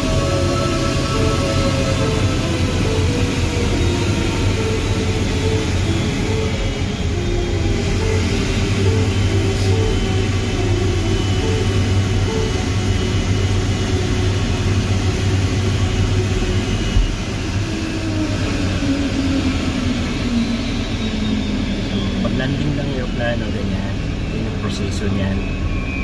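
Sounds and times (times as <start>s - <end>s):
faint high whine: 0.0s - 18.1s.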